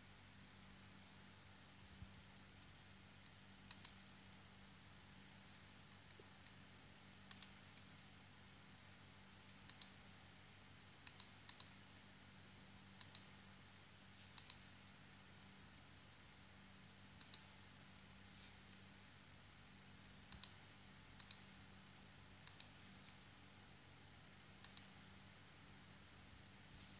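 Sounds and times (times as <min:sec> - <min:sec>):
faint steady hum: 0:00.0 - 0:26.9.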